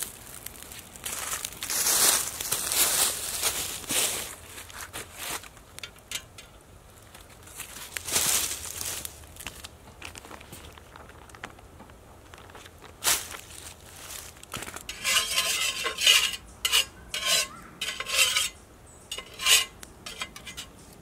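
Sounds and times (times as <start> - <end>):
campfire crackling: 0.0 - 3.9, 4.6 - 15.0
dry crinkling and rustling: 0.0 - 15.8.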